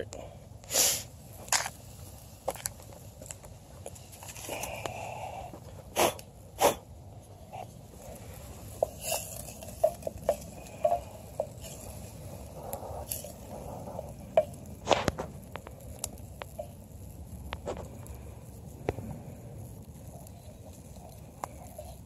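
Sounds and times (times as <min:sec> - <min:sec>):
campfire crackling: 0:00.0 - 0:22.0
wooden spoon scraping metal pot: 0:07.6 - 0:16.8.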